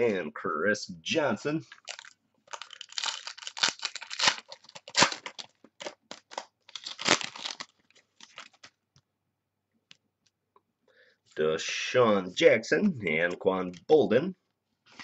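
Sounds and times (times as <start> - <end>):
cards rustling: 1.6 - 8.8
plastic wrapper crinkling and tearing: 1.7 - 8.8.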